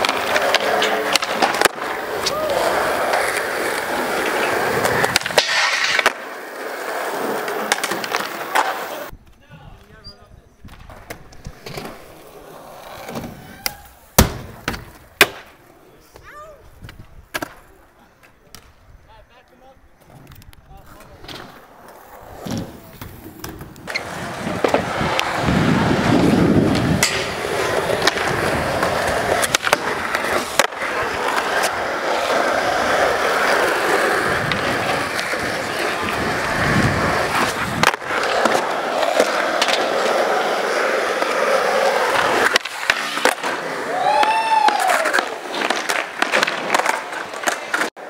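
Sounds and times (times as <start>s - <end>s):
skateboard clacks: 0.0s - 9.1s, 20.1s - 48.0s
skateboard wheels rolling on concrete: 0.0s - 48.0s.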